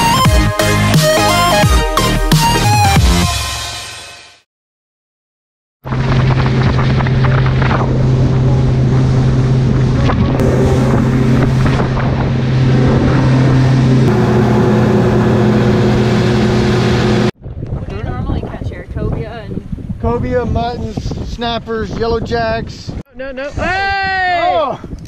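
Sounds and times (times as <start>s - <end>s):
outboard motor droning: 5.9s - 17.4s
wind on microphone: 5.9s - 25.0s.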